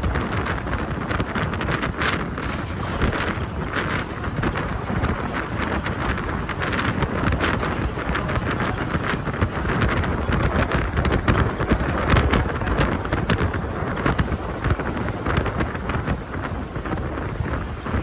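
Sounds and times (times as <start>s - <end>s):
bus running noise: 0.0s - 18.0s
wind buffeting microphone: 0.0s - 18.0s
short rattles and knocks: 1.8s - 11.6s, 14.0s - 15.6s.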